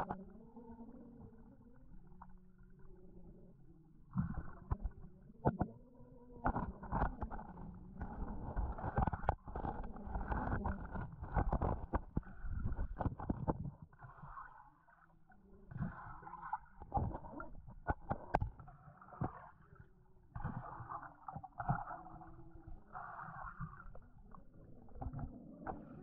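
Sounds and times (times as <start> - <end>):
underwater rumble and swishing: 0.0 - 26.0
underwater knocks and thumps: 4.1 - 5.8, 6.4 - 14.3, 15.7 - 19.5, 20.3 - 26.0.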